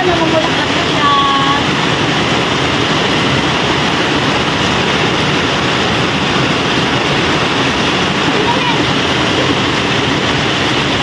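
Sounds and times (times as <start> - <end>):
heavy rain on concrete: 0.0 - 11.0.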